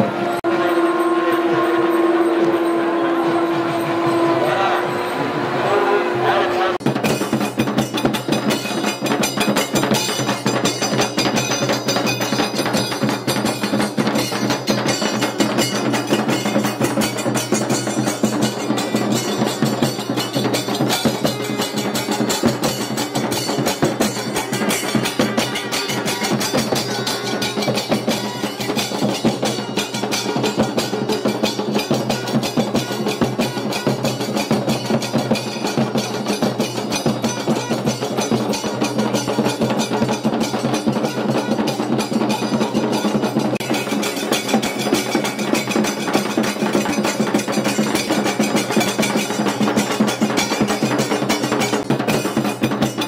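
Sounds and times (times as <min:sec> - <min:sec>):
sustained low tones: 0:00.0 - 0:06.8
sharp clacking and ringing strikes: 0:00.4 - 0:05.9, 0:06.8 - 0:53.0
fast continuous drumming: 0:06.8 - 0:53.0.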